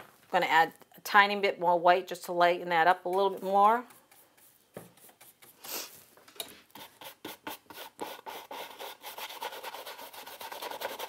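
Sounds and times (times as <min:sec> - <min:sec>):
paintbrush scrubbing canvas: 0:03.2 - 0:11.0.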